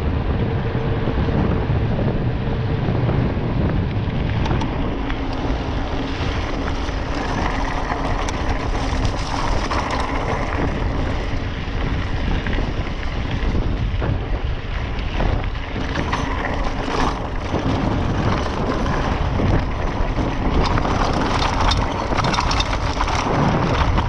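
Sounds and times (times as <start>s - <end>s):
bike rattling and knocking: 0.0s - 24.0s
wind on microphone: 0.0s - 24.0s
tyres crunching over stones: 5.0s - 13.4s, 15.1s - 24.0s.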